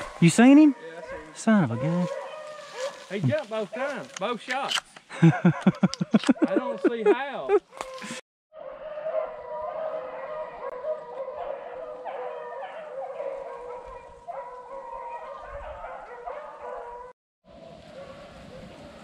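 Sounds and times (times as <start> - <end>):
dogs baying and howling: 0.0 - 4.0, 7.7 - 17.2, 17.9 - 18.8.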